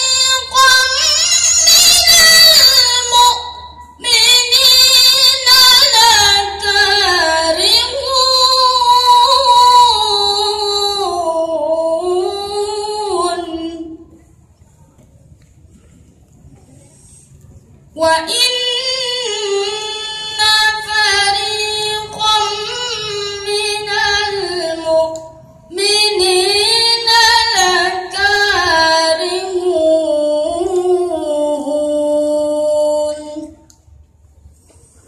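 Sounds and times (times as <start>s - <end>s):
boy chanting recitation: 0.0s - 15.0s, 16.6s - 33.7s.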